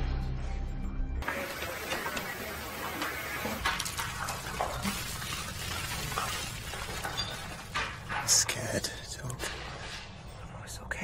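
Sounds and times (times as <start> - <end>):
music: 0.0 - 4.4.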